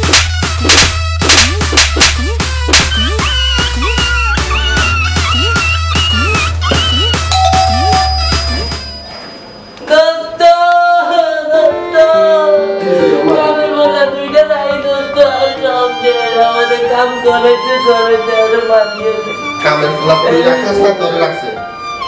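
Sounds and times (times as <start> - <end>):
upbeat electronic music: 0.0 - 9.2
slow emotional melody: 7.3 - 13.8.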